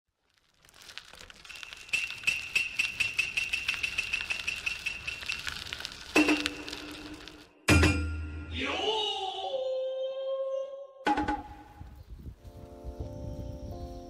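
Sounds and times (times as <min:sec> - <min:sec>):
small clicks with high ringing tone: 0:01.4 - 0:07.1.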